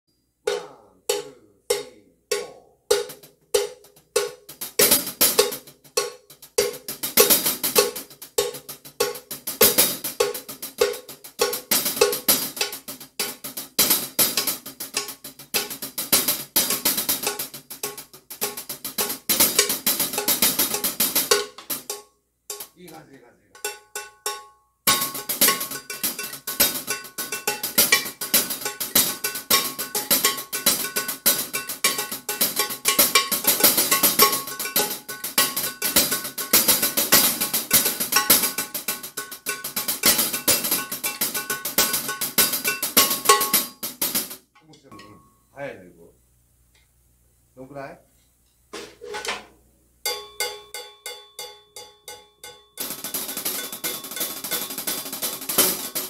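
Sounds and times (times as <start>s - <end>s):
child playing drum kit: 0.3s - 45.3s, 48.7s - 56.0s
steady cowbell-like click: 50.1s - 55.0s.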